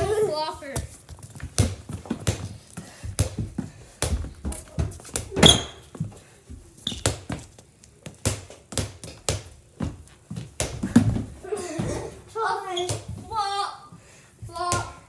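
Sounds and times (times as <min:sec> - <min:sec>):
sneakers thudding on hardwood floor: 0:08.1 - 0:12.2.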